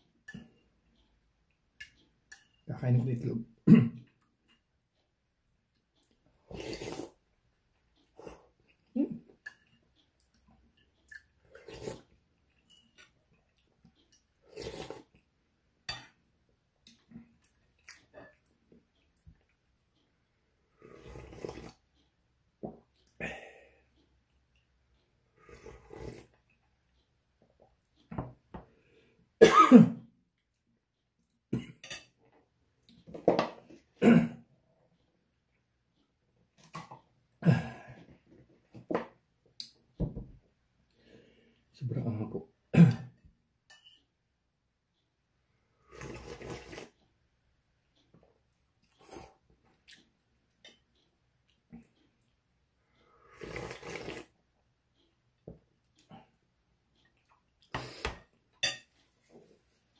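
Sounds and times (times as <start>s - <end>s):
man coughing: 3.6s - 4.0s, 29.4s - 30.0s, 34.0s - 34.4s
slurping noodles: 6.4s - 7.2s, 11.4s - 12.2s, 14.4s - 15.2s, 20.7s - 22.0s, 25.4s - 26.4s, 45.8s - 47.0s, 53.2s - 54.4s
spoon clinking glass bowl: 12.6s - 13.0s
chewing: 16.8s - 19.6s, 48.0s - 52.4s.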